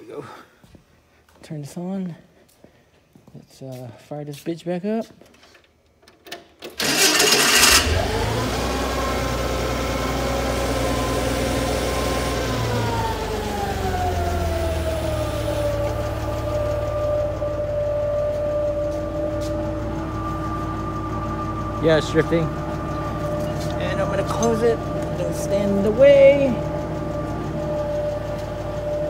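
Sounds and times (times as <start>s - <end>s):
starter cranking: 6.4s - 8.1s
forklift engine idling: 6.8s - 29.0s.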